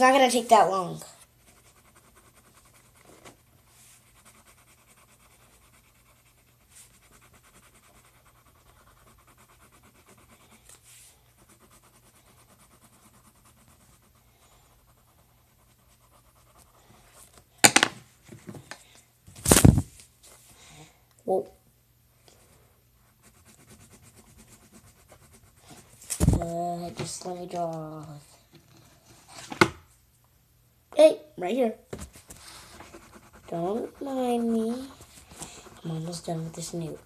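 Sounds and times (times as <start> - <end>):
pencil scratching on paper: 0.3 - 17.4, 23.0 - 26.6, 32.0 - 37.0
faint breathing: 20.4 - 21.2, 34.9 - 35.8.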